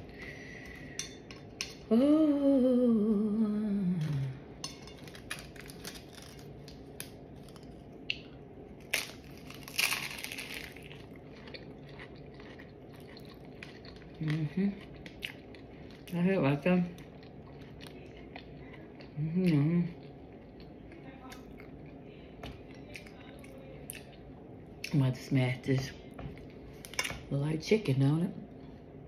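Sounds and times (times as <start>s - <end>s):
woman humming: 1.9s - 4.5s, 14.2s - 14.8s, 19.2s - 20.0s
crunching and chewing food: 4.0s - 25.0s.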